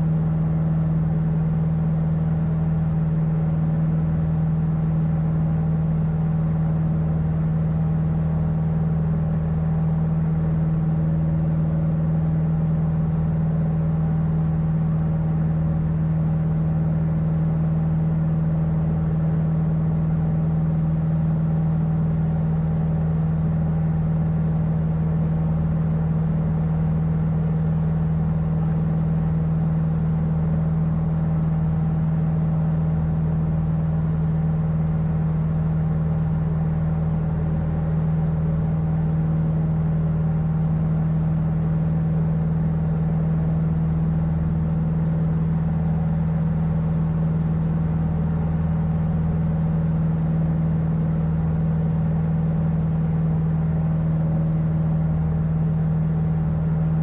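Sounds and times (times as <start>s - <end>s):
aircraft engine droning in flight: 0.0s - 57.0s.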